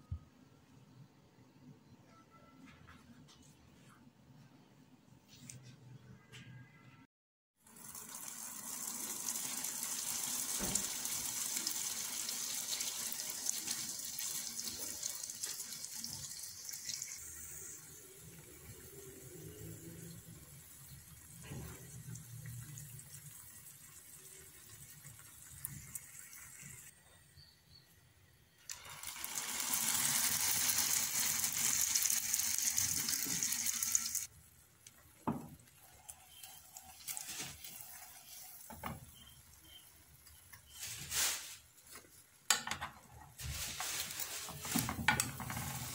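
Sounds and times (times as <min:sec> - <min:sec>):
dough sizzling in oil: 0:07.6 - 0:27.0, 0:28.7 - 0:42.5.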